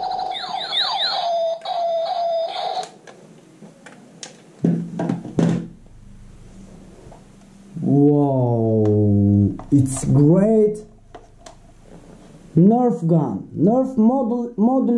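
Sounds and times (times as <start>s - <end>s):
toy laser blaster zaps: 0.0s - 3.0s
steady electronic tone: 5.6s - 14.9s.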